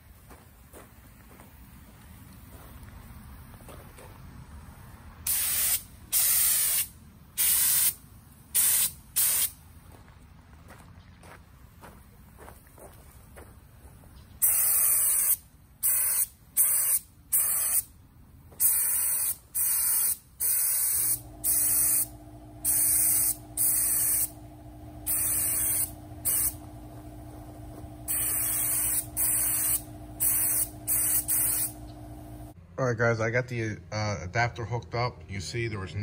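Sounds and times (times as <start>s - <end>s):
spray gun hissing bursts: 5.3s - 9.6s, 14.4s - 17.9s, 18.6s - 32.6s
machine hum: 21.0s - 32.7s.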